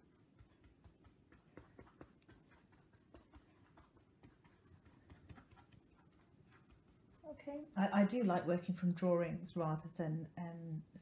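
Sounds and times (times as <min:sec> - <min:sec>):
paintbrush scratching on canvas: 0:00.0 - 0:11.0.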